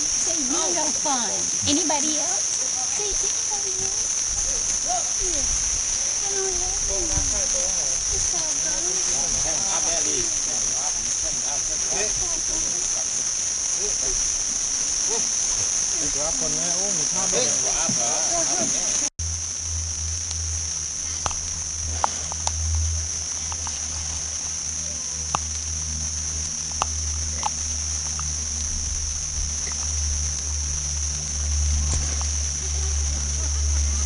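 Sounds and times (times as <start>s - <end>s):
insects droning: 0.0s - 34.0s
low rumble: 19.2s - 34.0s.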